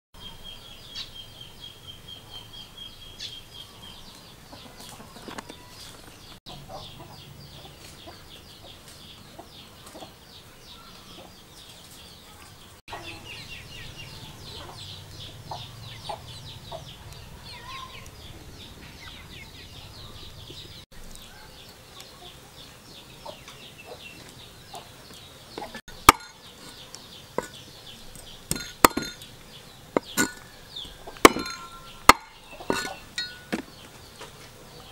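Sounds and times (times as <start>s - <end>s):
chickens clucking: 3.9s - 10.2s, 10.9s - 34.9s
steady high chirping: 25.8s - 33.6s
cleaver chopping on wood: 28.5s - 29.2s, 31.2s - 33.7s.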